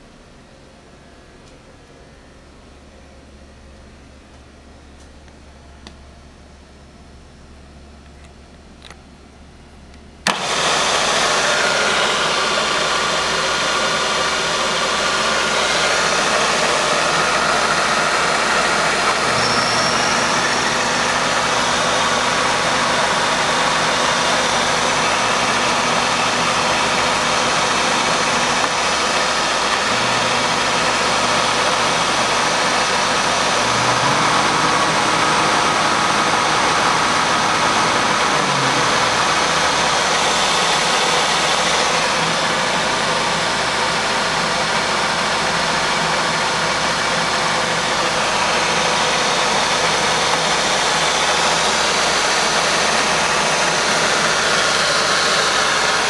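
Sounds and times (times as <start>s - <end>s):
milling machine spindle whirring: 10.2s - 56.0s.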